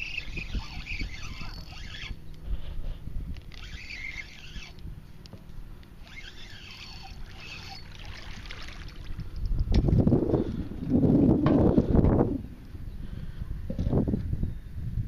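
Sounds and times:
spinning reel gears whirring: 0.0 - 2.2, 3.4 - 4.8, 6.0 - 9.6
low rumbling handling noise: 0.0 - 14.5.

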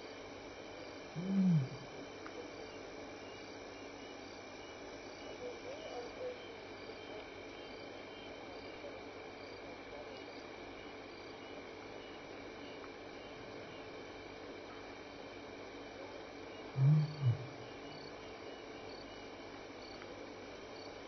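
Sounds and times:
crickets and insects chirping: 0.0 - 21.0
low animal call: 1.1 - 2.0, 16.7 - 17.8
faint wavering animal calls: 1.1 - 4.0, 5.2 - 7.8, 16.5 - 19.2.

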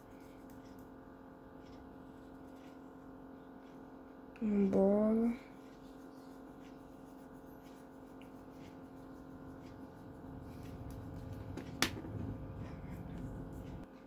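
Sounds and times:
steady low hum: 0.0 - 14.0
pencil scratching on paper: 5.5 - 11.6, 12.2 - 13.9.

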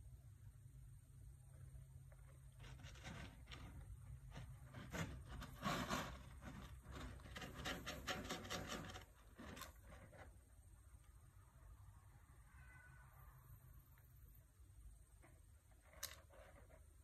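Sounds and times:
kitten scratching cat litter: 1.7 - 10.6, 15.6 - 17.0.

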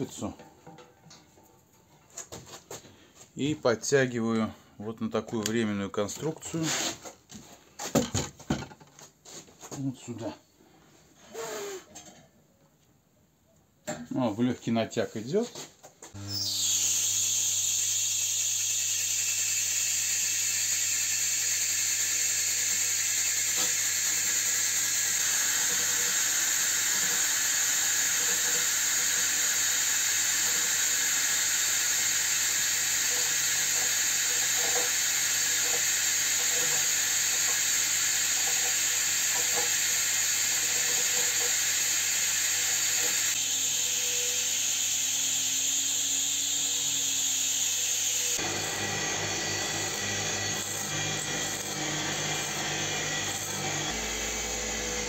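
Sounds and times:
scraping tool hissing on wheel: 16.4 - 44.4
motor humming: 40.4 - 55.0.

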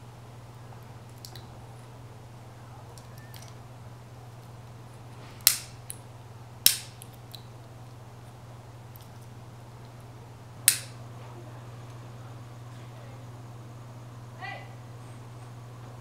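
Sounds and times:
steady low hum: 0.0 - 16.0
lighter clicks: 5.4 - 6.0, 6.6 - 7.4, 10.6 - 11.0.

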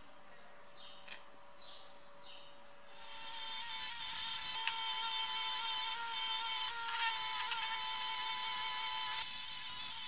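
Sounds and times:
bench grinder whining: 2.9 - 10.0.

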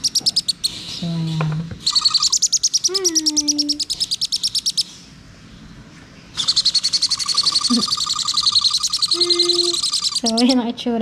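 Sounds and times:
parrot chick peeping: 0.0 - 1.1, 1.8 - 5.0, 6.3 - 10.7.

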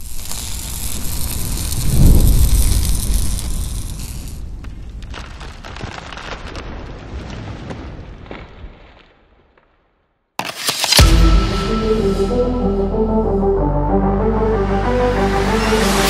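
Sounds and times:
crackling sparking burst: 0.0 - 7.5, 10.4 - 11.4
loud hit: 10.9 - 12.8
music: 11.0 - 16.0.

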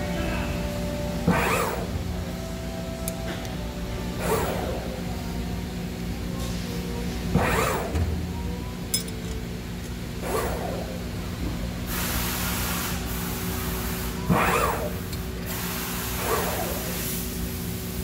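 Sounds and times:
machine whir: 0.7 - 5.2, 7.3 - 8.2, 10.1 - 18.0
metal part clinking: 8.9 - 9.4
hiss: 11.9 - 14.2.

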